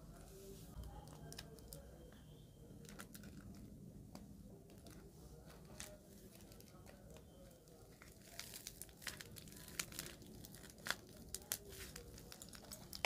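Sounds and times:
plastic piping bag crinkling: 2.8 - 3.8, 4.7 - 13.0.

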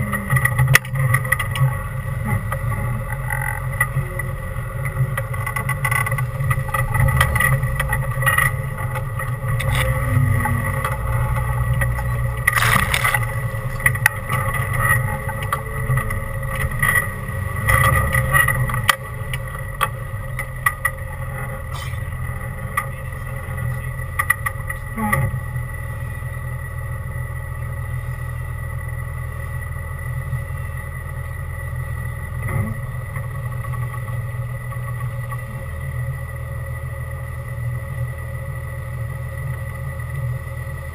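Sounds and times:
off-road vehicle engine running: 0.0 - 40.9
chassis knocks and rattles: 11.8 - 15.5.

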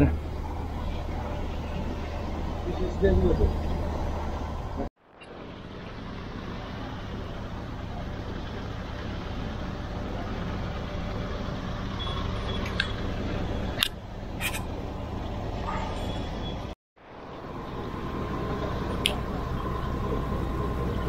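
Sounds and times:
boat engine running: 17.3 - 21.0.

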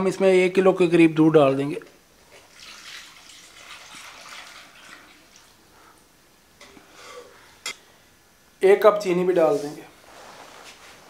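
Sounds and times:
milk pouring and splashing: 2.3 - 5.6.

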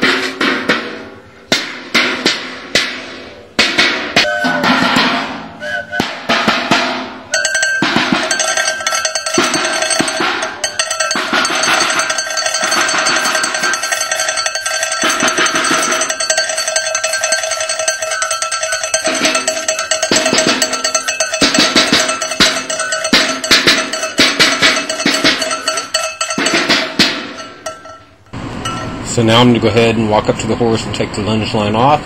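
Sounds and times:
bell ringing rapidly: 7.3 - 29.9.

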